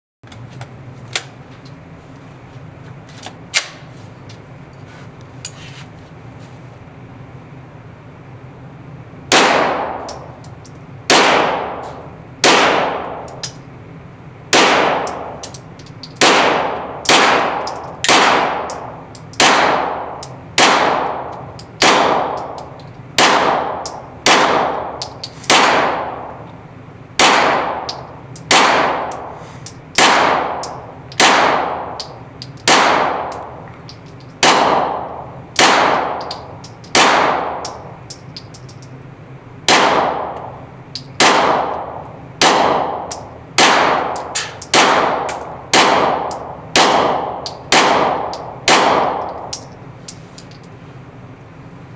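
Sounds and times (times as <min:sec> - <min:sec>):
gunshots echoing indoors: 0:09.3 - 0:10.3, 0:11.1 - 0:11.8, 0:12.4 - 0:13.6, 0:14.5 - 0:15.4, 0:16.2 - 0:26.4, 0:27.2 - 0:33.6, 0:34.4 - 0:37.9, 0:39.6 - 0:40.6, 0:41.2 - 0:49.7.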